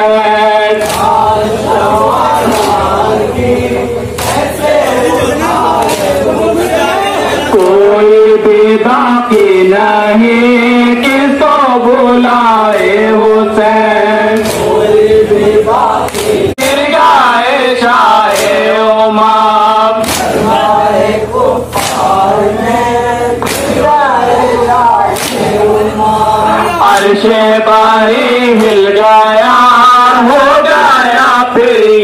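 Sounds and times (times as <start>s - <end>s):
men chanting: 0.0s - 32.0s
hands slapping chests: 0.8s - 1.3s, 2.4s - 3.0s, 4.2s - 4.5s, 5.8s - 6.3s, 14.4s - 14.8s, 16.0s - 16.8s, 18.3s - 18.6s, 20.0s - 20.5s, 21.7s - 22.2s, 23.4s - 23.8s, 25.1s - 25.6s.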